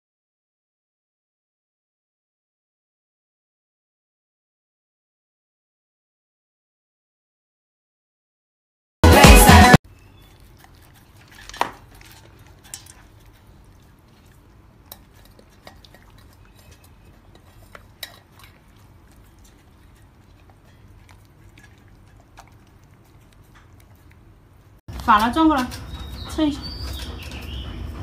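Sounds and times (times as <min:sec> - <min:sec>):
clinks on metal bowl: 0:11.4 - 0:13.1.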